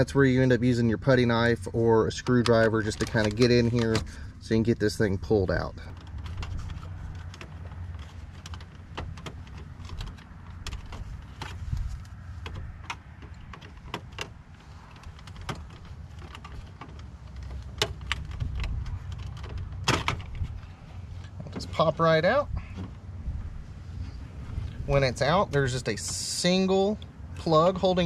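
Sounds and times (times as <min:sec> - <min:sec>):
steady low rumble: 0:00.0 - 0:28.0
plastic clicks and scrapes: 0:02.2 - 0:04.1, 0:05.8 - 0:20.6.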